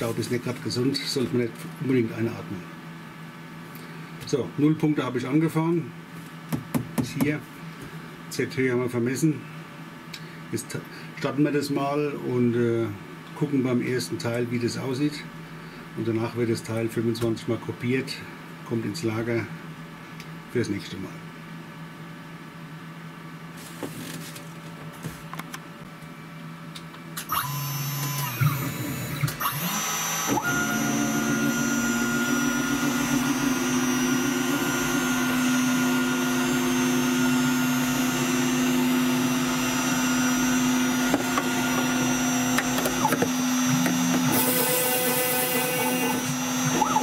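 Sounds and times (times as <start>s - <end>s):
router spindle whining: 27.3s - 47.0s.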